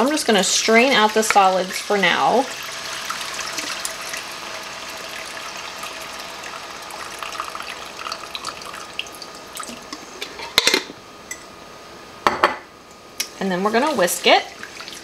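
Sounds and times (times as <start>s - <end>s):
liquid pouring into a skillet: 2.4s - 9.9s.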